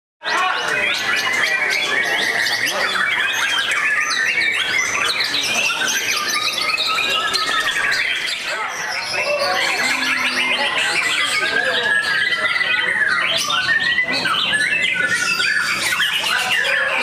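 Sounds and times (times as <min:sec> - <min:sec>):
birds singing: 0:00.2 - 0:17.0.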